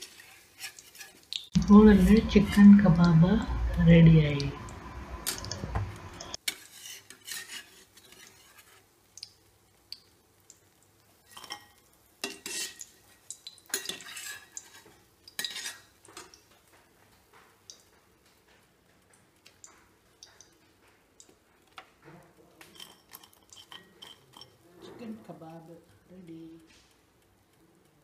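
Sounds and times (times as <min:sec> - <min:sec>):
metal spoon scraping a wok: 0:00.0 - 0:01.3, 0:06.4 - 0:08.8, 0:12.2 - 0:12.8, 0:13.7 - 0:16.3, 0:22.7 - 0:24.6.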